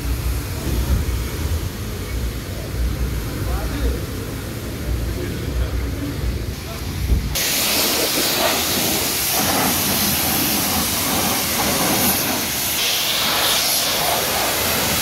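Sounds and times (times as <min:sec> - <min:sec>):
pressure washer spraying water: 0:07.4 - 0:15.0.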